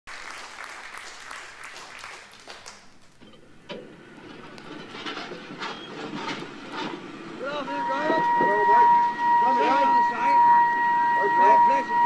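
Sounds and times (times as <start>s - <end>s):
scattered applause: 0.1s - 3.2s.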